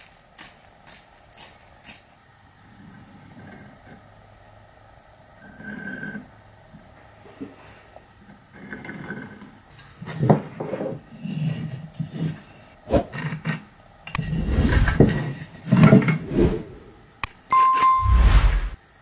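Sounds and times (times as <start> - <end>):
wood scraping on wood: 14.2 - 16.9.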